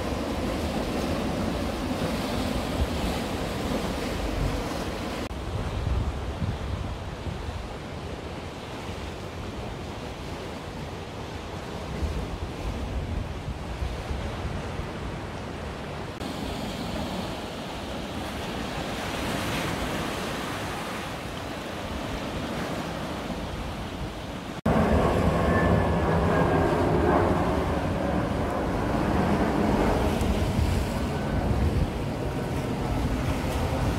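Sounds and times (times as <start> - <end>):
jet airliner passing overhead: 0.0 - 6.3, 23.0 - 33.9
wind buffeting microphone: 0.0 - 8.0, 21.9 - 33.9
sea waves breaking over rocks: 0.0 - 33.9.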